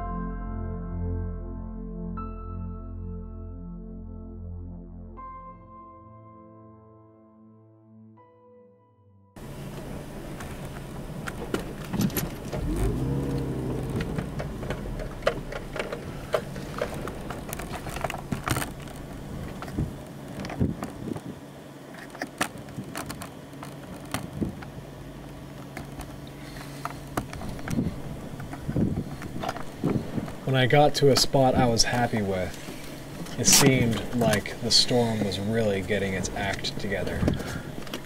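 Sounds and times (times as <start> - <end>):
car engine running: 9.4 - 38.0
sharp clicks and knocks: 10.4 - 21.2.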